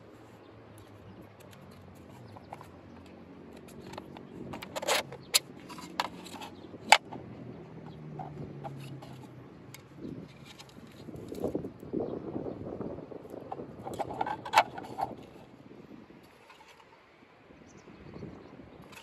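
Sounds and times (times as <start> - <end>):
plastic clicks and knocks: 1.4 - 7.2.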